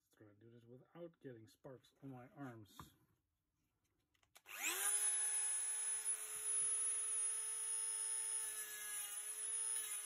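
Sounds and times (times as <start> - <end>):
rotary tool cutting bolt: 4.4 - 10.0.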